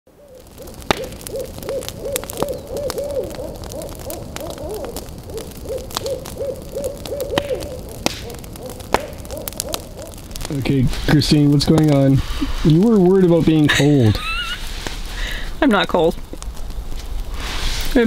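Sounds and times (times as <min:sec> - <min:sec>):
owls hooting: 0:00.1 - 0:10.3
sharp crackling snaps: 0:00.1 - 0:18.0.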